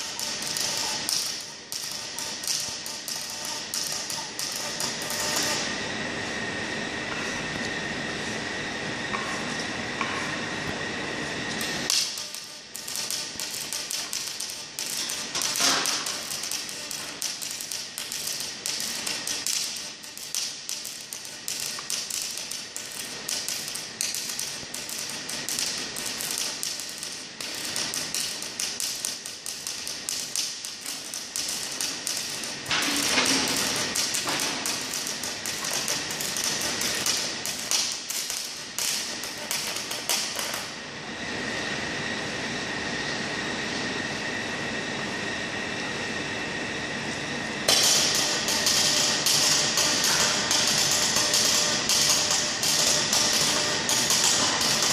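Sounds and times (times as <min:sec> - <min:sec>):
welding arc crackling: 0:00.0 - 0:05.8, 0:11.5 - 0:40.8, 0:47.7 - 0:54.9.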